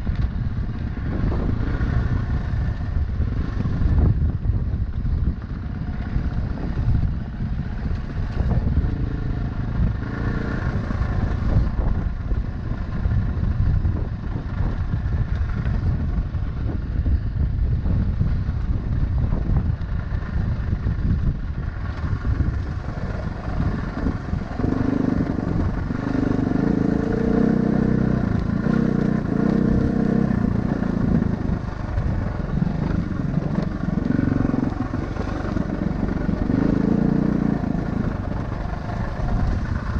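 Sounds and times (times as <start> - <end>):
vehicle engine running: 0.0 - 39.9.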